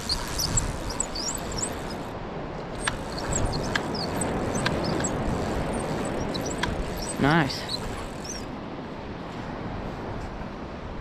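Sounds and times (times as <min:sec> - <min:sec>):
faint clicks: 0:00.0 - 0:02.1, 0:02.8 - 0:08.5
wind: 0:00.0 - 0:11.0
surf on a beach: 0:08.4 - 0:11.0.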